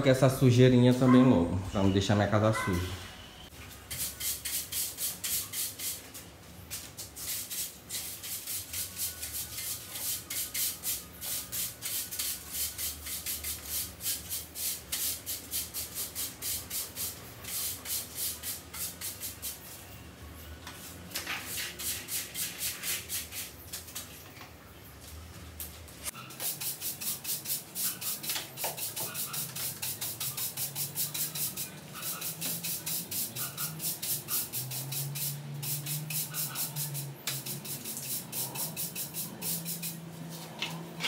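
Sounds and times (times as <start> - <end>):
broom sweeping soil on concrete: 26.4 - 40.5.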